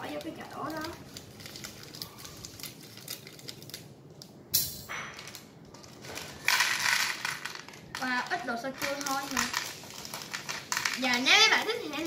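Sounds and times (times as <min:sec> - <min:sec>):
plastic bricks clicking and rattling: 0:05.2 - 0:12.0.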